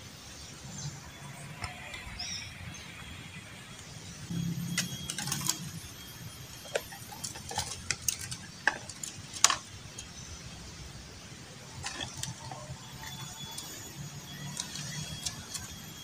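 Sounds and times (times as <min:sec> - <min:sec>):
bird cage bars rattling: 0:04.6 - 0:10.2, 0:11.7 - 0:16.0.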